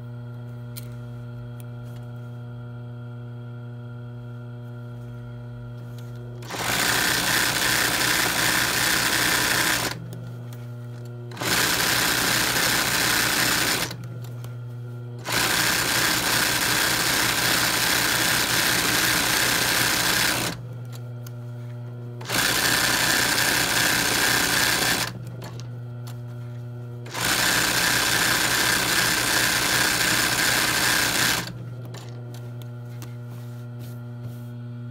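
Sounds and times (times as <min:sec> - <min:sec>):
steady low hum: 0:00.0 - 0:06.5
sewing machine stitching: 0:06.4 - 0:10.0, 0:11.3 - 0:14.0, 0:15.2 - 0:20.6, 0:22.2 - 0:25.7, 0:27.1 - 0:32.2.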